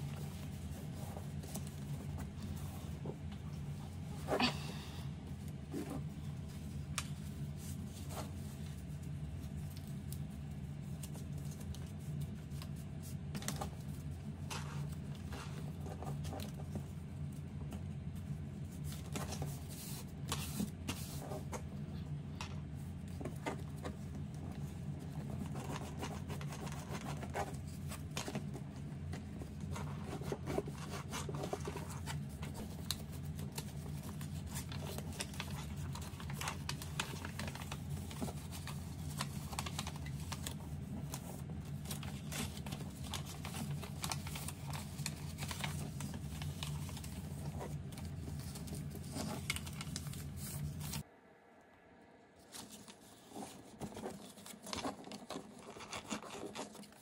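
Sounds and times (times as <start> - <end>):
paper folding and crackling: 0.0 - 51.1, 52.4 - 57.0
low hum: 49.6 - 53.8.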